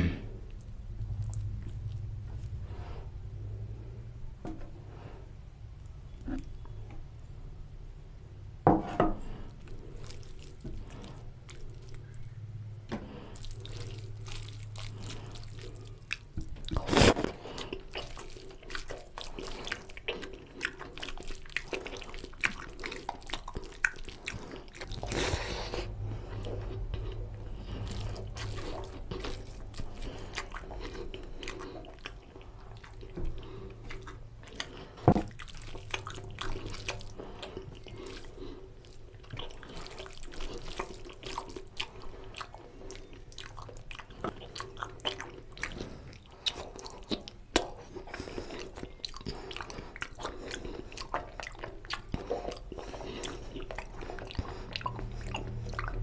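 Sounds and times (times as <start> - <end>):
wet chewing and lip-smacking: 0.4 - 2.6, 9.5 - 56.0
fingers squishing rice in gravy: 9.6 - 12.4, 13.2 - 25.3, 26.8 - 55.6
loud wet slurps: 13.1 - 56.0.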